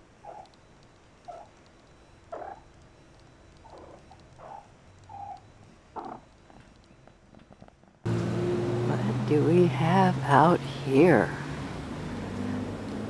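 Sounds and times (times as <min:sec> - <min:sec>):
cat calling: 0:00.2 - 0:00.6, 0:01.2 - 0:01.6, 0:02.3 - 0:02.7, 0:03.6 - 0:06.2.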